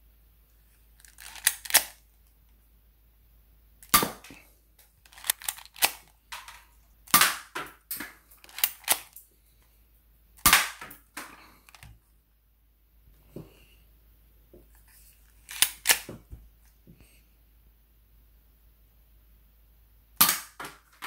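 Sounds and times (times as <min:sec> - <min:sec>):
airsoft pistol shots: 0:03.9 - 0:04.3, 0:07.1 - 0:07.6, 0:10.4 - 0:10.9, 0:20.2 - 0:20.6
pistol slide racking: 0:05.1 - 0:06.0, 0:08.4 - 0:09.2, 0:15.5 - 0:16.1.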